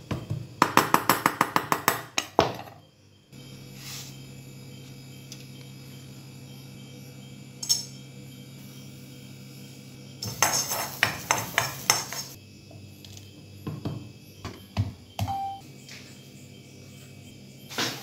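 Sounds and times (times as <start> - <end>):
metal spoon scraping a wok: 10.2 - 12.4.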